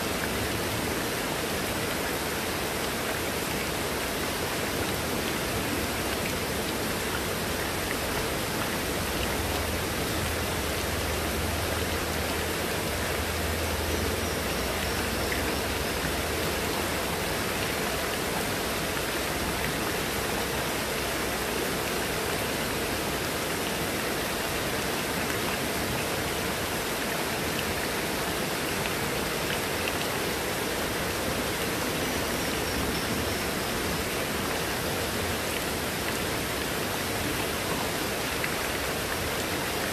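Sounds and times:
heavy rain on leaves and paving: 0.0 - 39.9
runoff streaming off a roof: 0.0 - 39.9.

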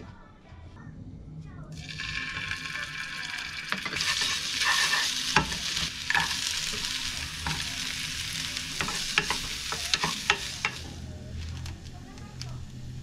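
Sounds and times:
garlic sizzling in oil: 1.8 - 11.1.

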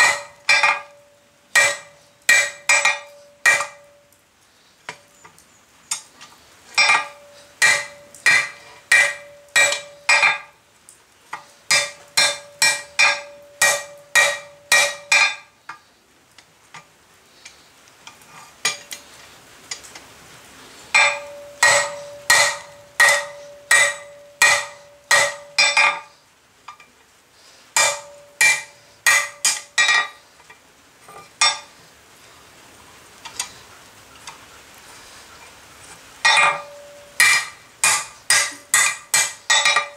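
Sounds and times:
hammer striking steel on anvil: 0.0 - 1.0, 1.6 - 3.9, 6.8 - 10.5, 11.7 - 15.5, 21.0 - 26.1, 27.8 - 30.2, 36.2 - 39.9.

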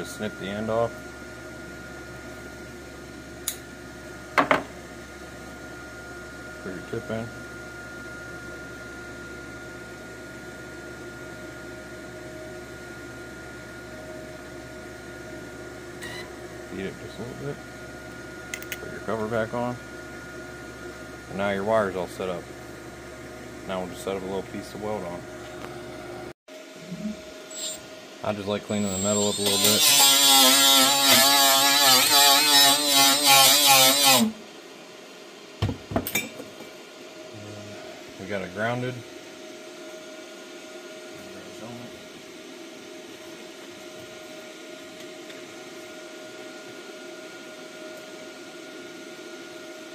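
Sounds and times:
fan hum with high whine: 0.0 - 49.9
power tool grinding steel: 27.5 - 27.8, 28.8 - 34.3.

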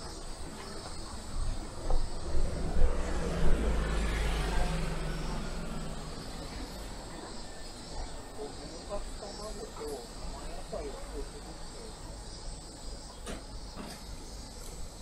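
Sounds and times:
motor vehicle passing by: 1.3 - 8.3.

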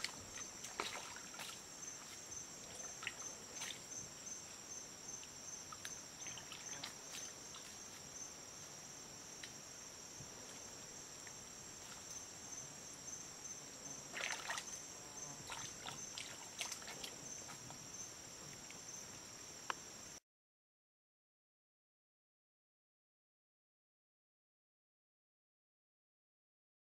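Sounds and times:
water splashes: 0.0 - 4.1, 5.2 - 7.9, 14.0 - 17.8
insects chirping: 0.0 - 20.2.

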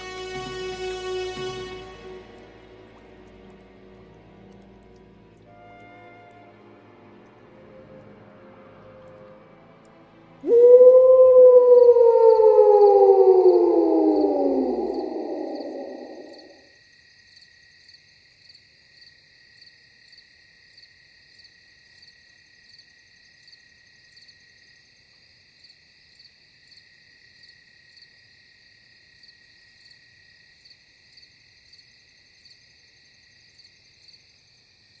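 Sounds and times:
wolf howling: 10.4 - 16.6
crickets chirping: 10.5 - 35.0.

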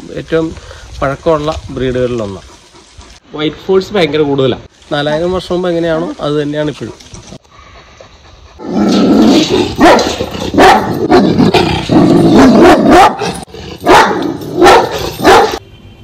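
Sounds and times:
dog barking: 9.8 - 11.4, 12.4 - 15.6.

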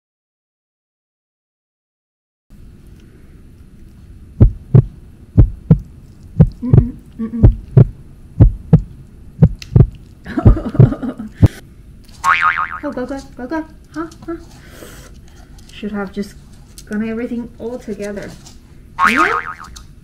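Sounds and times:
heartbeat thumps: 4.4 - 11.6.

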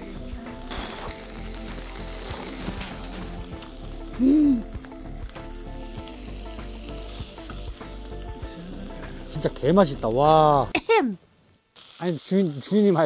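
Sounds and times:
beef sizzling on a grill: 0.0 - 11.1, 11.7 - 13.0.

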